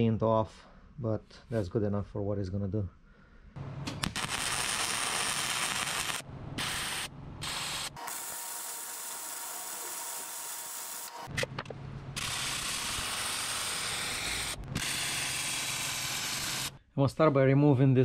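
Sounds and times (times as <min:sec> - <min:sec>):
welding arc crackling: 0:03.9 - 0:11.4, 0:12.2 - 0:16.8.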